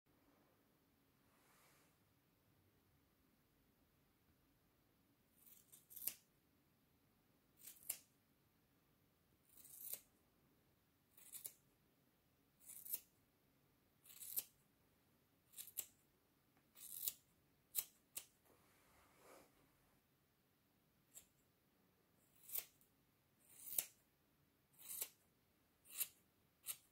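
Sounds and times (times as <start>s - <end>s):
scissors snipping hair: 5.4s - 6.3s, 7.6s - 8.1s, 9.5s - 10.1s, 11.2s - 11.6s, 12.6s - 13.1s, 14.0s - 14.6s, 15.5s - 16.0s, 16.7s - 18.3s, 22.4s - 22.8s, 23.5s - 24.0s, 24.8s - 25.2s, 25.9s - 26.9s.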